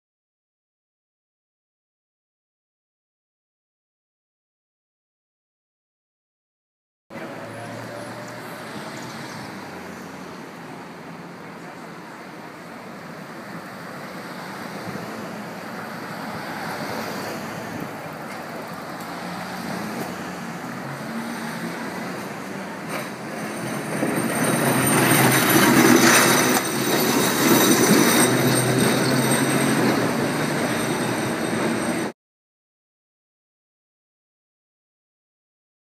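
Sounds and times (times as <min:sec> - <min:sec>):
streetcar rumbling on rails: 0:07.1 - 0:32.1
street traffic noise: 0:07.1 - 0:32.2.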